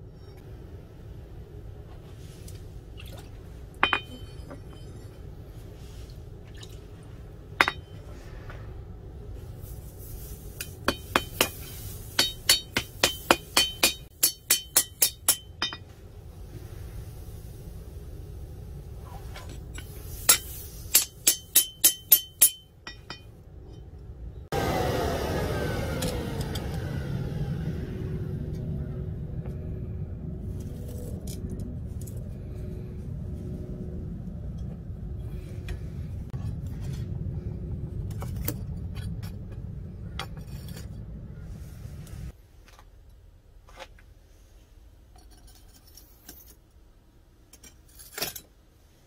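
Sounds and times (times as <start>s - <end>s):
hammer striking blade on anvil: 10.9s - 15.9s, 20.3s - 23.3s.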